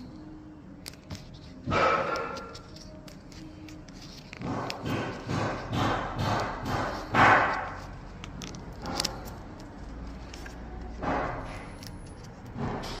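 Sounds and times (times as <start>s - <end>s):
paint skin tearing and rubbing: 6.9s - 12.6s.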